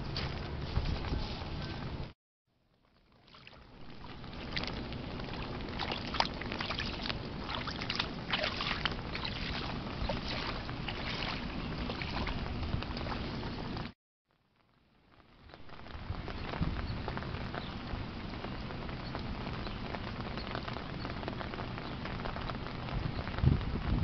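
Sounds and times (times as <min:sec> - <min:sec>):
light rain dripping: 0:02.5 - 0:24.0
boots splashing through puddles: 0:03.0 - 0:13.9.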